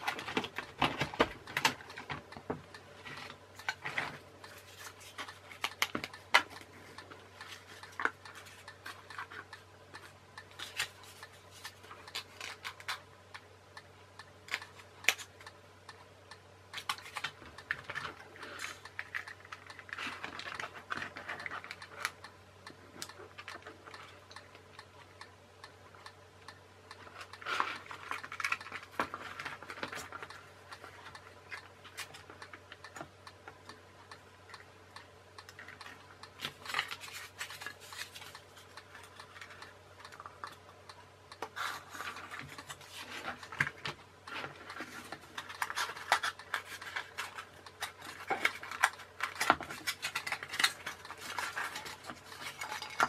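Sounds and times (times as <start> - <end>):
plastic parts clicking and knocking: 0.0 - 6.7, 27.2 - 33.1, 41.4 - 53.0.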